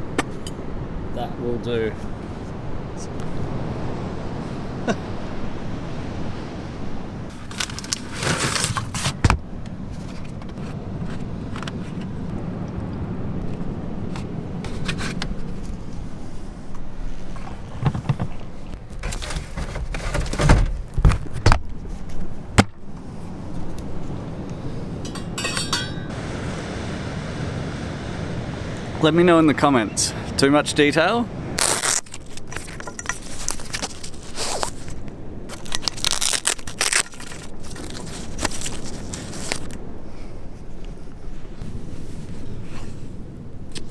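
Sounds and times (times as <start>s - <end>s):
camping gear being handled: 7.3s - 12.1s, 14.6s - 24.0s, 25.0s - 26.1s, 31.6s - 43.9s
folding table clattering: 19.0s - 20.8s
spoon clinking against metal cup: 25.1s - 26.1s.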